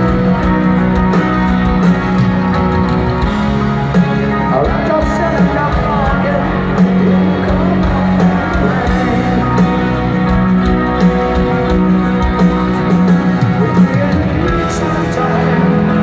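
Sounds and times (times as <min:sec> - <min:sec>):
live rock power ballad: 0:00.0 - 0:16.0
sung lead vocal: 0:04.3 - 0:10.5, 0:12.9 - 0:16.0.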